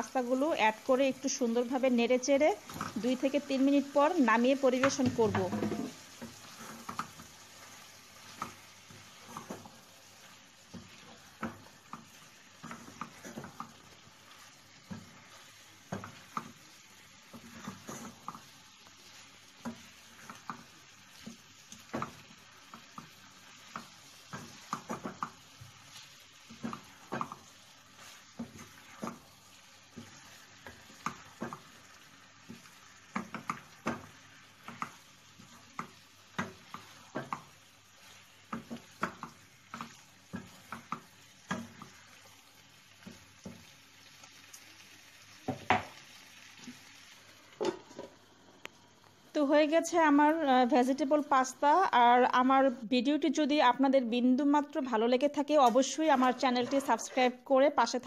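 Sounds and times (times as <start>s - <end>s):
faint sizzle: 0.0s - 58.0s
spatula knocking and scraping pan: 4.6s - 43.7s, 45.4s - 46.0s, 55.5s - 57.4s.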